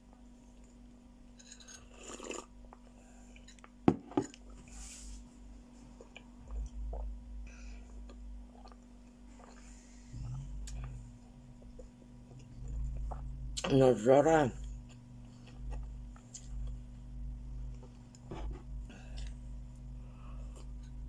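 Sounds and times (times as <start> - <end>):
low steady hum: 0.0 - 21.0
soft chewing: 5.2 - 13.7, 14.5 - 21.0.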